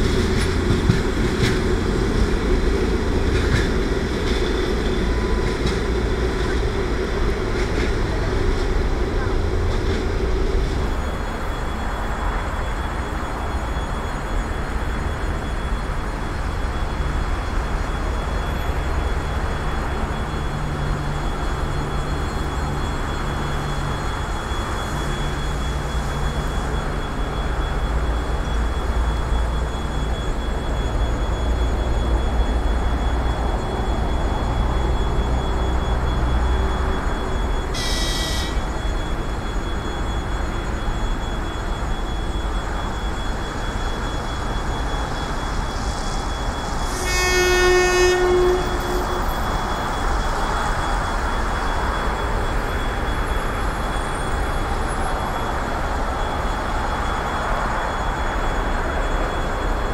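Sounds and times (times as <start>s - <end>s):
train rumble: 0.0s - 59.9s
high-pitched train whistle: 37.6s - 38.8s, 45.6s - 50.3s
train horn blast: 37.7s - 38.6s, 46.9s - 49.3s.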